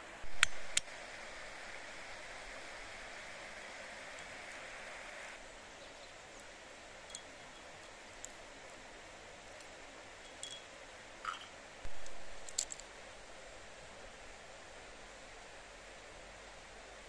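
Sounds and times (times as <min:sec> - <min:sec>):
river rushing: 0:00.0 - 0:05.5
walnut shells clicking on metal: 0:10.3 - 0:12.9.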